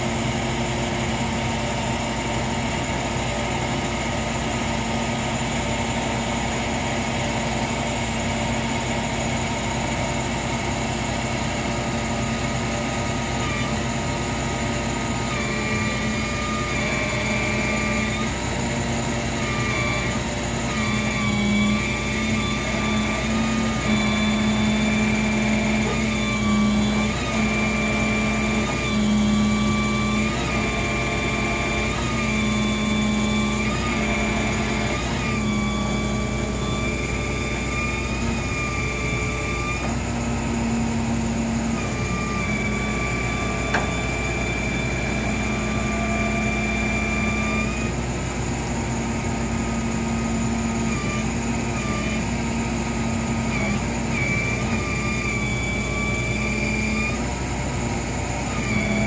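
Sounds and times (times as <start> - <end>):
vehicle engine running: 0.0 - 59.0
high wavering whine: 12.2 - 53.9.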